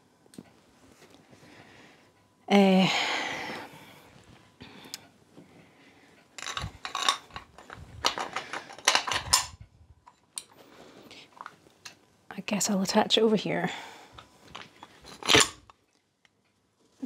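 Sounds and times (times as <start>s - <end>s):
cast-iron parts clinking and rattling: 6.4s - 10.3s, 14.5s - 15.7s.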